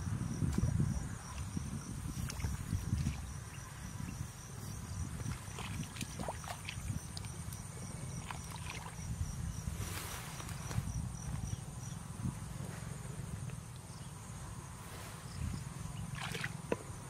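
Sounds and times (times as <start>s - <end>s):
sloshing in muddy water: 0.5s - 9.2s, 16.0s - 16.7s.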